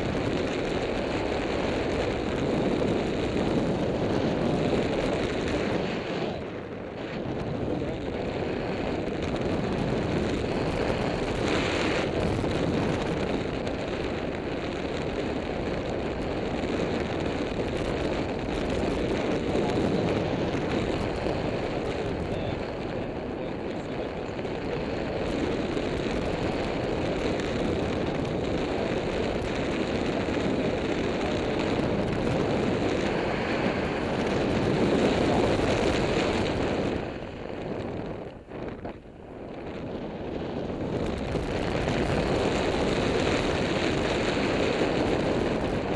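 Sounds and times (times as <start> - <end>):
wind buffeting microphone: 0.0 - 45.9.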